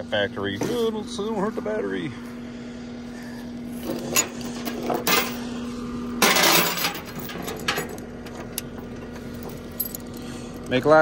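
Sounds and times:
steady low hum: 0.0 - 11.0
steel chain clinking and rattling: 3.8 - 5.4, 6.2 - 10.8.

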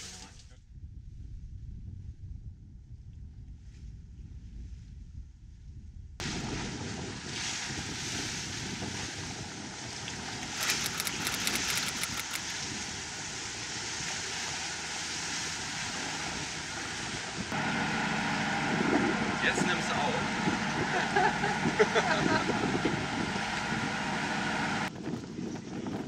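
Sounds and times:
wind buffeting microphone: 0.6 - 13.1, 20.2 - 24.1, 24.8 - 26.0
water rushing along hull: 6.2 - 24.9.

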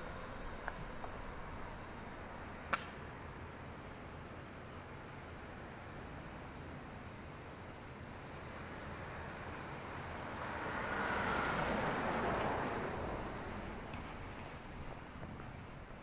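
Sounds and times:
vehicle passing by: 10.3 - 14.4.

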